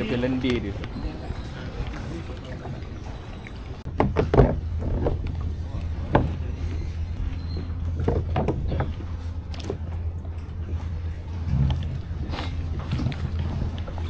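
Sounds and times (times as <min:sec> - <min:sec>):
water moving around a hull: 0:00.0 - 0:14.0
low rumble: 0:00.7 - 0:14.0.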